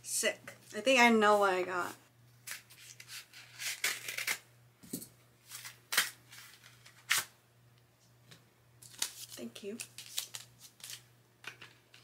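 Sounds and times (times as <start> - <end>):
paper envelope rustling: 8.8 - 11.0.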